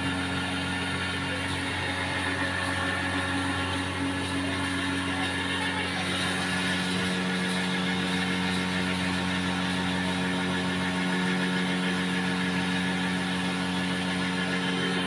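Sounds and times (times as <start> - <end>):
cotton candy machine humming: 0.0 - 15.0.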